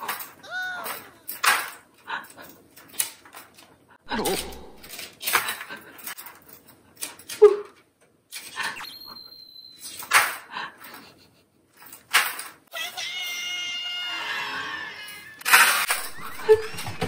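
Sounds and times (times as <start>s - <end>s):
high beep: 8.8s - 9.9s.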